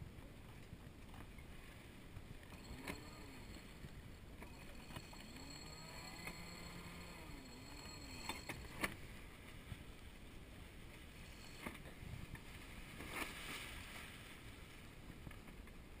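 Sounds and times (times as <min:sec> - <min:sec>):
wind: 0:00.0 - 0:16.0.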